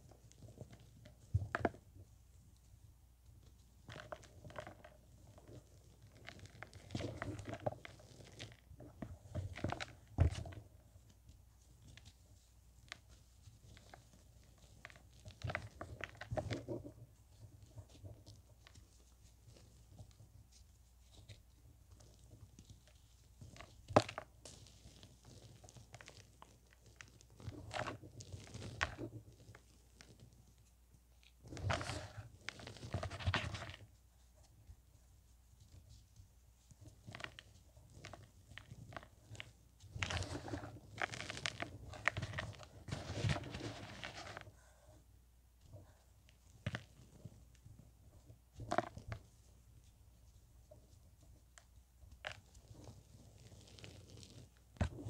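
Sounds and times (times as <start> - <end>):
hands crushing chalky powder: 3.5 - 45.0, 45.8 - 55.0.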